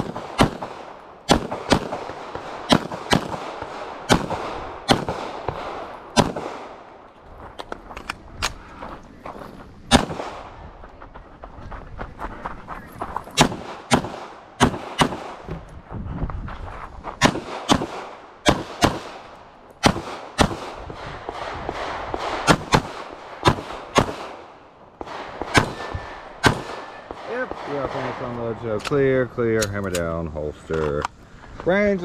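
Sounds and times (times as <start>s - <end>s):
pistol shots: 0.0s - 6.8s, 9.9s - 10.5s, 13.4s - 15.5s, 17.2s - 29.0s.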